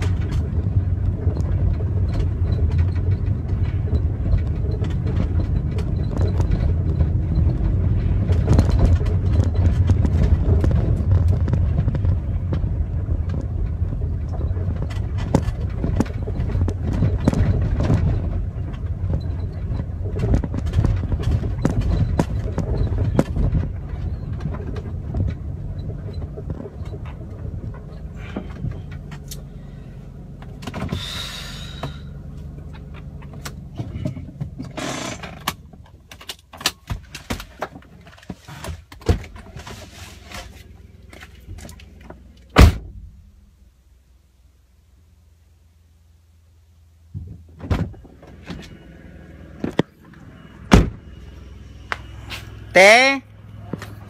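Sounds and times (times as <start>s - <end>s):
car road and engine rumble: 0.0s - 54.0s.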